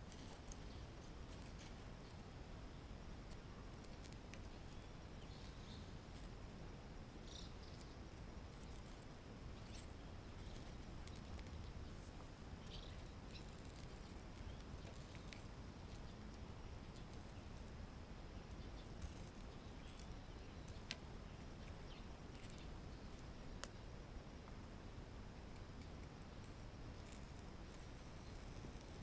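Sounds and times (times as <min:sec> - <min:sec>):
charcoal ticking and crackling: 0:00.0 - 0:29.0
low background noise: 0:00.0 - 0:29.0.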